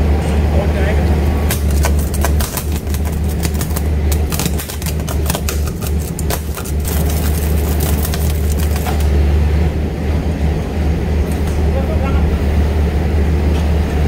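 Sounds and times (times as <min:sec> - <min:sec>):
low machine hum: 0:00.0 - 0:14.0
electric welding crackling and popping: 0:01.4 - 0:09.3.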